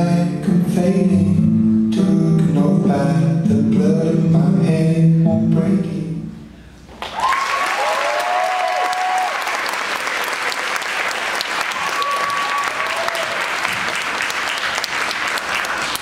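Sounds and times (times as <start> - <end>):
high cheers: 7.0 - 14.0
audience applauding: 7.0 - 16.0.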